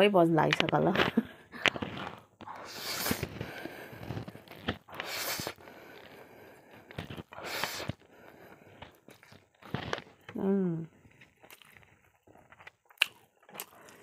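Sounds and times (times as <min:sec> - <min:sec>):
person chewing: 0:01.6 - 0:14.0
person slurping noodles: 0:01.8 - 0:10.0.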